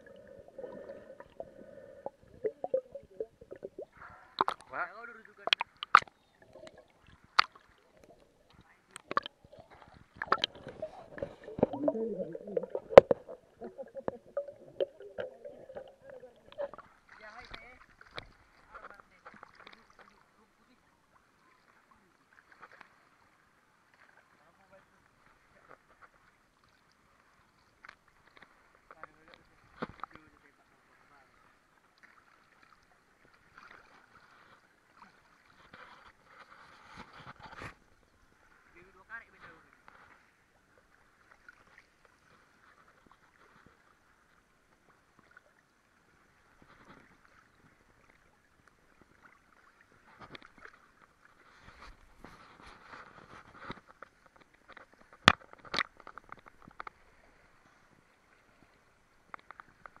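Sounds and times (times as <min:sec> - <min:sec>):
lake water lapping: 0:00.0 - 0:20.8
water splashing and sloshing: 0:00.0 - 1:00.0.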